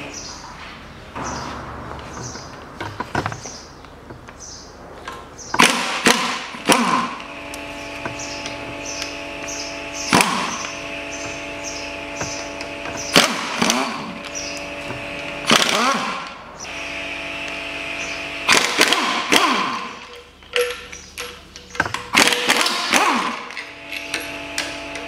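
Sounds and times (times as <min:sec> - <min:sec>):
wrench clanking on metal: 0:19.4 - 0:25.0.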